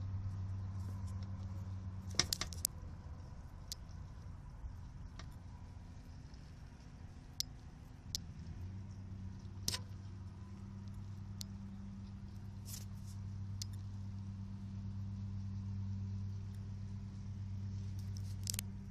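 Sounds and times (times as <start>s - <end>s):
steady low hum: 0.0s - 18.9s
light metallic clicks and taps: 0.8s - 2.8s, 3.4s - 13.9s, 17.8s - 18.9s.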